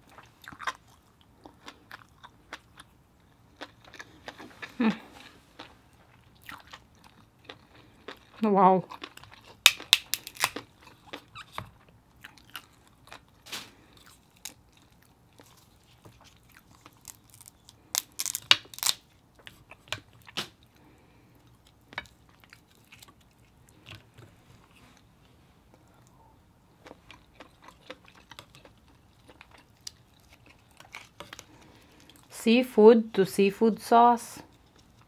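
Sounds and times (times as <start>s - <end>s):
close-up chewing: 0.0s - 32.3s, 34.5s - 35.0s
crab shell cracking: 9.1s - 11.6s, 16.6s - 19.1s.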